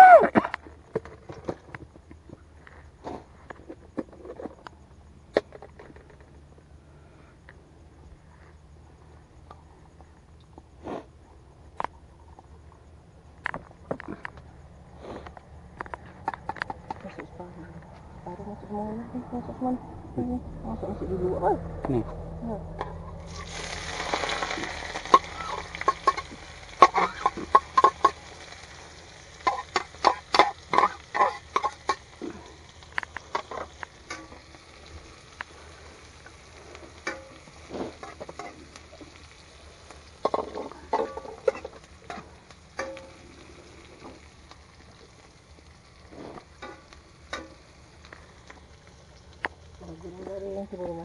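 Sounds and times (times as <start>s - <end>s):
food sizzling in a frying pan: 23.1s - 51.0s.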